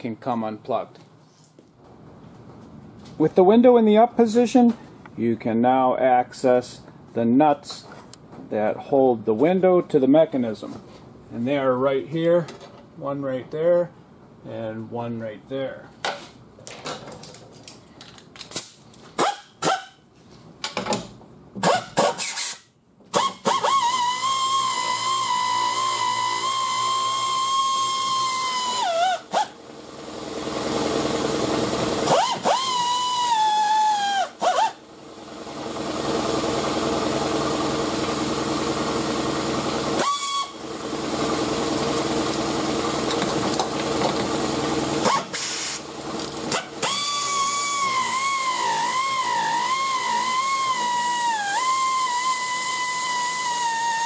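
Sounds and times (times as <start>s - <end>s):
air ratchet whining: 21.6s - 29.6s, 32.0s - 34.8s, 40.0s - 40.6s, 45.0s - 54.0s.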